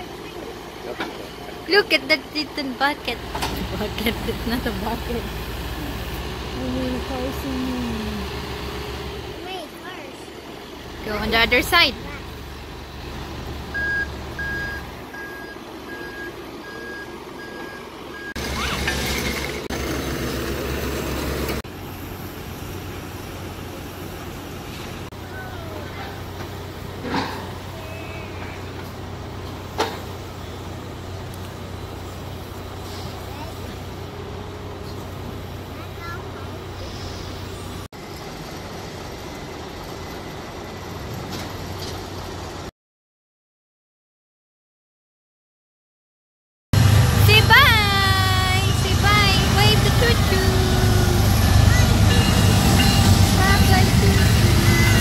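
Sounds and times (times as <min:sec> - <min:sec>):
diesel engine running: 0:00.0 - 0:42.7, 0:46.8 - 0:55.0
loud track loader engine: 0:00.0 - 0:42.7, 0:46.8 - 0:55.0
outdoor background noise: 0:00.0 - 0:42.7
backup alarm beeping: 0:13.7 - 0:18.4.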